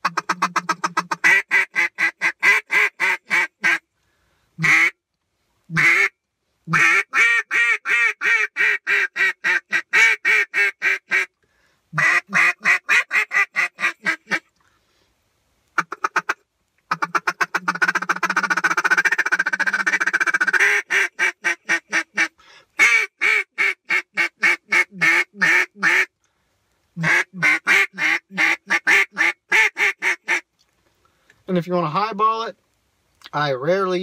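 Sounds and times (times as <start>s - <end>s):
duck call quacks: 0.0s - 3.8s, 4.6s - 5.0s, 5.7s - 6.1s, 6.7s - 11.3s, 12.0s - 14.5s, 15.8s - 26.1s, 27.0s - 30.5s
duck call rolling chatter: 15.8s - 26.1s, 27.0s - 30.4s.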